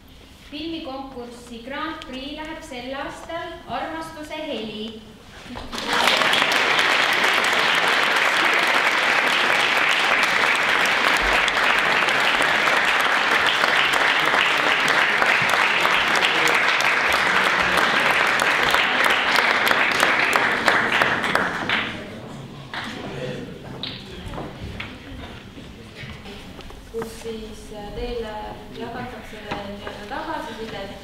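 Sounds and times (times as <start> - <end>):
audience applause: 5.6 - 22.2.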